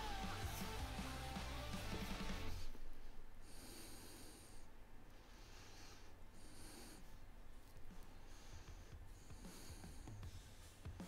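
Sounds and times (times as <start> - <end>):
low steady hum: 0.0 - 10.8
soft hissing breaths: 2.2 - 11.0.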